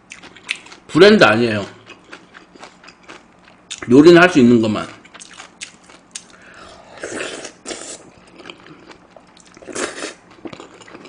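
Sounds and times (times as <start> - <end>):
person chewing with wet clicks: 0.0 - 0.8, 1.8 - 3.9, 5.0 - 6.4, 7.4 - 11.0.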